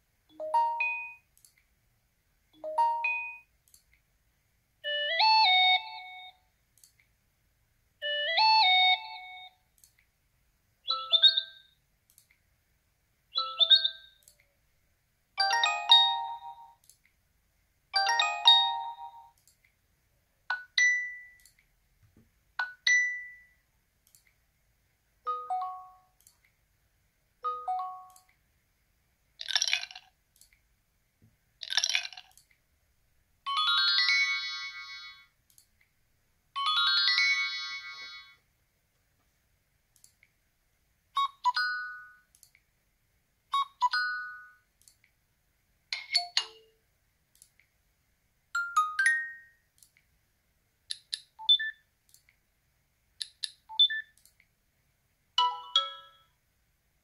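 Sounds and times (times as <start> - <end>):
smartphone alert tones: 0.3 - 1.3, 2.6 - 3.5, 4.8 - 6.4, 10.8 - 11.7, 13.3 - 14.2, 18.0 - 19.4, 25.3 - 26.2, 27.4 - 28.3, 41.2 - 42.2, 55.4 - 56.3.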